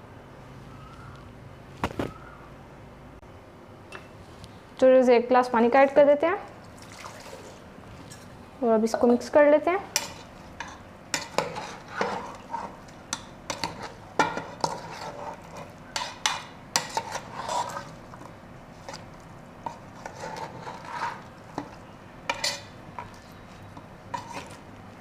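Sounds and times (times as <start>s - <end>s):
metal spoon scraping a pot: 9.9s - 24.7s.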